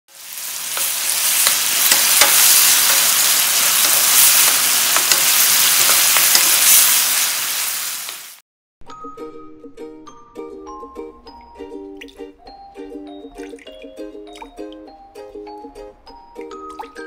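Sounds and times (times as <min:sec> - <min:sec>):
food sizzling in a frying pan: 0:00.1 - 0:08.4.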